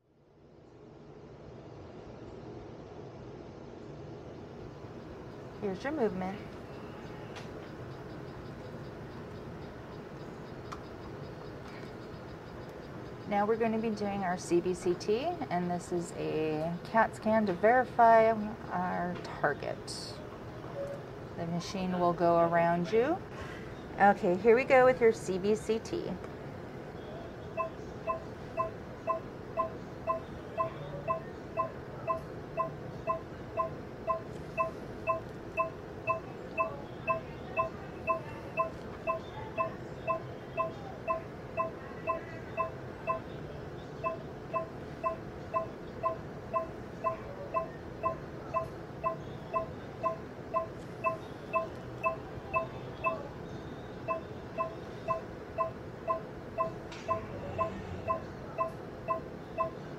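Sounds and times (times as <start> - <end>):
low machine hum: 0.0 - 59.9
short electronic beeps: 27.6 - 43.3, 44.0 - 53.3, 54.0 - 59.8.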